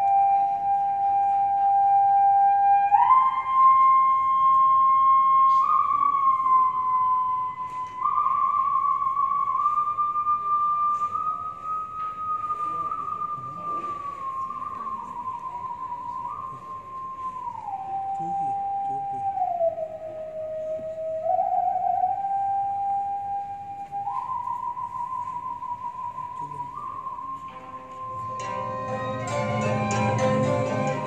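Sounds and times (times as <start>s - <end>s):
monochord gliding melody: 27.8s - 31.0s.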